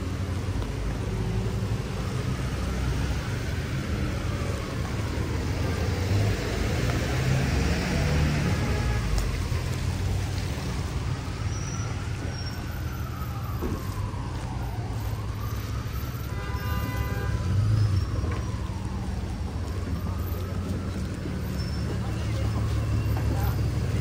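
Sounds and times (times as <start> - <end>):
faint siren wailing: 0.0 - 24.0
traffic on wet roads: 0.0 - 24.0
car horn toot: 8.4 - 9.2, 16.3 - 17.6.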